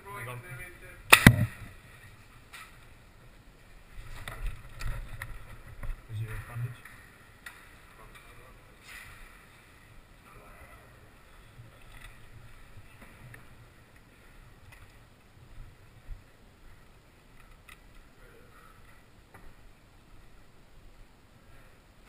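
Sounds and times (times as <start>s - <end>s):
low rumble of handling camera: 4.0s - 6.1s.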